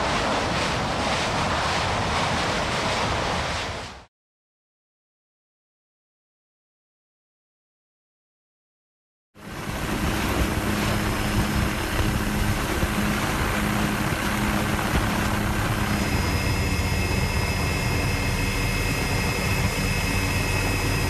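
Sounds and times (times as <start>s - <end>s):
aircraft engine drone: 0.0s - 4.1s, 9.4s - 21.0s
high whine: 9.4s - 21.0s.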